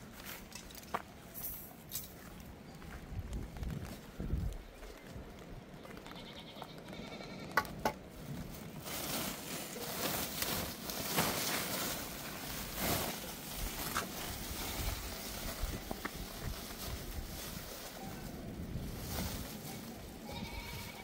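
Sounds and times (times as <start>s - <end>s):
animals bleating: 5.9s - 7.7s, 14.5s - 15.3s, 19.7s - 21.0s
steady rustling noise: 7.7s - 21.0s.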